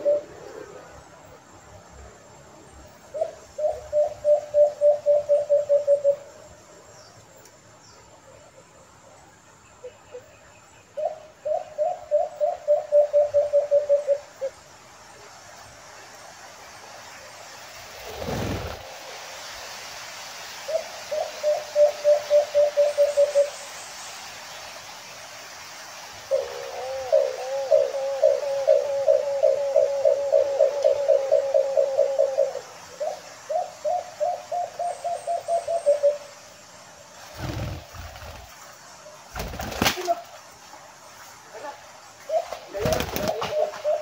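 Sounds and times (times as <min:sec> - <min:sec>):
dove cooing: 0:00.0 - 0:00.8, 0:03.1 - 0:06.2, 0:11.0 - 0:14.5, 0:20.7 - 0:23.5, 0:26.3 - 0:36.2, 0:42.3 - 0:44.0.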